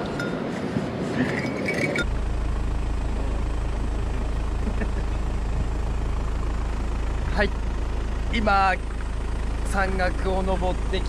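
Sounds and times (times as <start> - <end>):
vehicle engine humming: 0.0 - 11.0.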